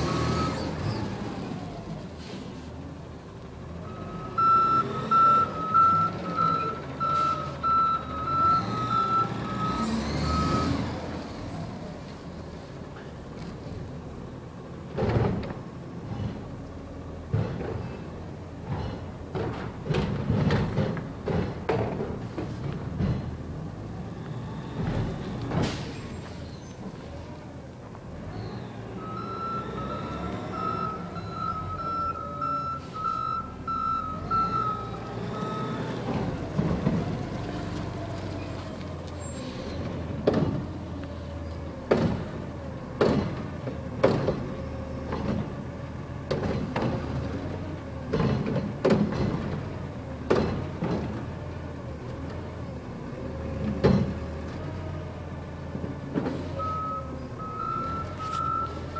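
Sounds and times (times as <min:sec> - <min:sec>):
truck reversing beeper: 0:00.0 - 0:02.4, 0:03.8 - 0:11.2, 0:28.3 - 0:36.5, 0:56.5 - 0:58.9
diesel engine revving: 0:00.0 - 0:02.6, 0:03.6 - 0:12.2, 0:28.1 - 0:58.9
clanks and bangs of trash carts: 0:14.9 - 0:15.6, 0:18.6 - 0:23.4, 0:24.8 - 0:26.4, 0:41.8 - 0:45.6, 0:46.2 - 0:51.3.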